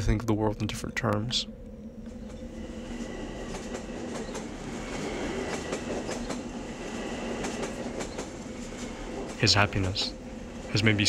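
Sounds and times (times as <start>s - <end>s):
train running on rails: 0.0s - 11.0s
train wheels clacking: 2.2s - 11.0s.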